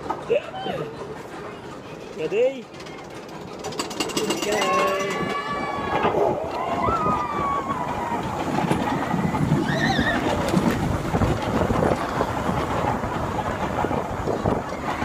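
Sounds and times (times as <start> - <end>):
roller coaster rattling on track: 0.0 - 15.0
wind buffeting microphone: 4.3 - 15.0.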